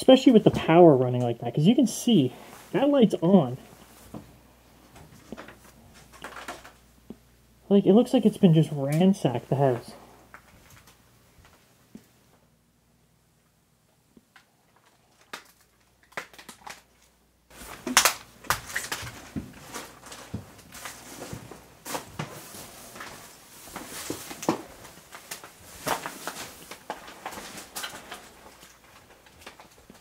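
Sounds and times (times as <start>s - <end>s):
footsteps crunching over debris: 17.5s - 30.0s.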